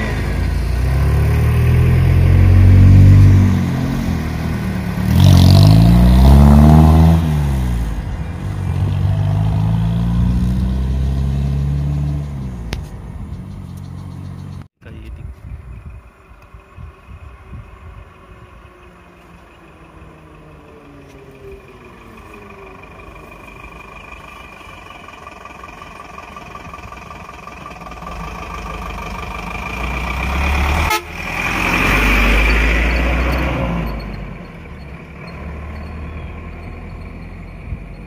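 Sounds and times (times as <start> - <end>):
truck engine running: 15.9 - 38.0.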